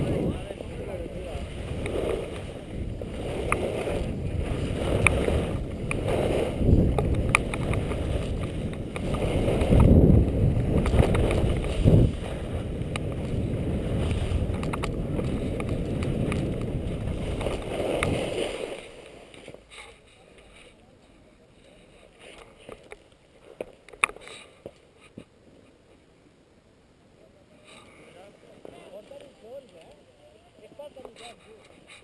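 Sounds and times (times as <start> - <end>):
wind rushing over camera: 0.0 - 19.8
skis scraping on packed snow: 0.0 - 20.8.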